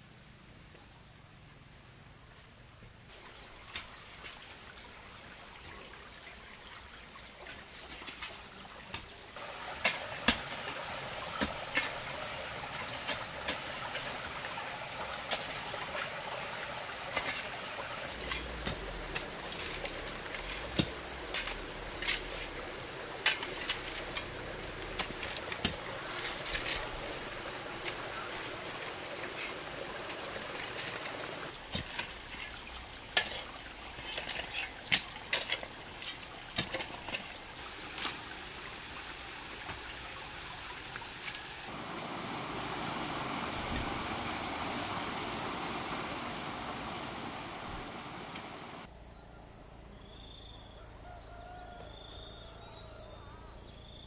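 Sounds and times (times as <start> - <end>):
steady hiss: 8.0 - 48.9
hoes chopping stony soil: 11.2 - 12.2, 18.2 - 27.0.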